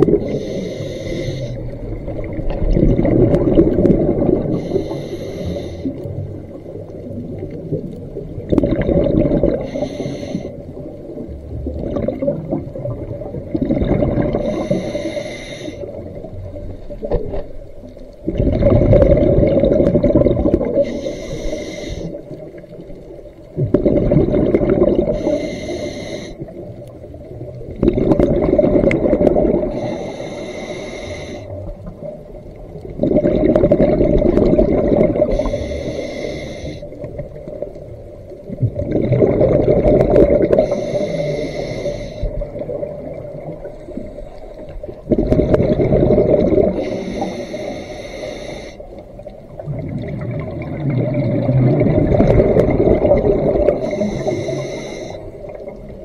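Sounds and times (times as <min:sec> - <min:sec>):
bubbling exhale underwater: 0:00.0 - 0:15.1, 0:18.2 - 0:22.8, 0:23.6 - 0:56.0
hissing inhale through regulator: 0:00.1 - 0:02.4, 0:04.3 - 0:06.9, 0:09.4 - 0:10.8, 0:14.2 - 0:16.3, 0:20.5 - 0:22.8, 0:24.9 - 0:26.7, 0:28.8 - 0:31.9, 0:35.1 - 0:37.3, 0:40.4 - 0:49.2, 0:53.5 - 0:55.6.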